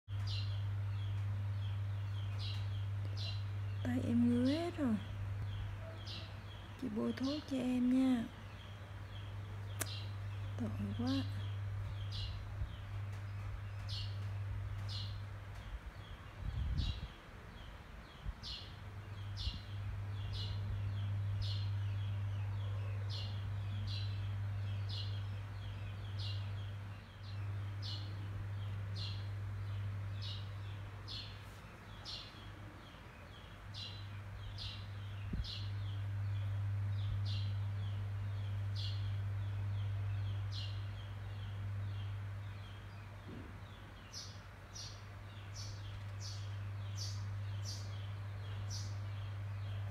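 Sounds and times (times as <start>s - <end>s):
bird chirping: 0.1s - 49.9s
steady low hum: 0.1s - 49.9s.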